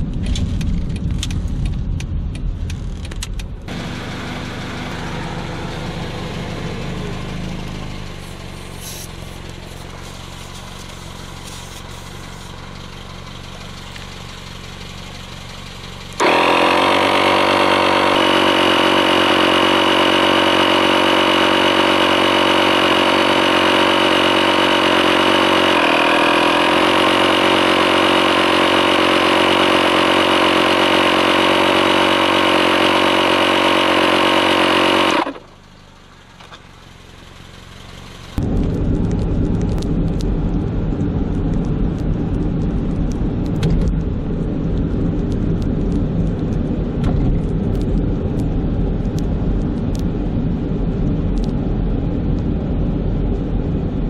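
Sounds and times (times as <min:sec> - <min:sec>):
car driving with road rumble: 0:00.0 - 0:54.0
tyre compressor buzzing hum: 0:03.7 - 0:12.8, 0:16.1 - 0:35.6.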